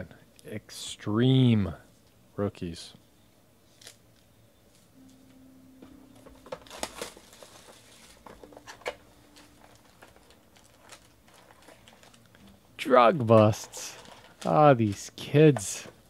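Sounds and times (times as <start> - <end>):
shrink wrap crinkling and tearing: 3.7 - 4.9, 6.4 - 16.0.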